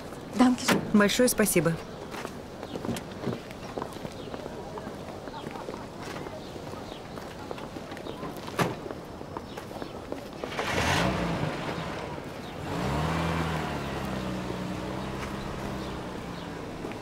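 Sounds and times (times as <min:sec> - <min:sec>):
car engine revving: 0:10.5 - 0:17.0.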